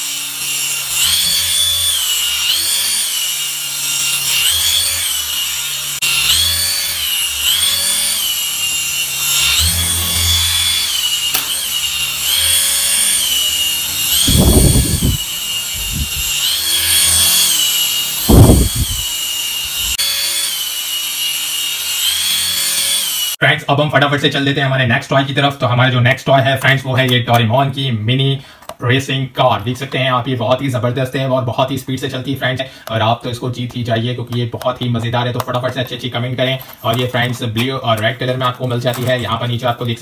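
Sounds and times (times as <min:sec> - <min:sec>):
toy helicopter motor whine: 0:00.0 - 0:23.4
dull low thumps: 0:14.0 - 0:17.1, 0:18.2 - 0:20.0.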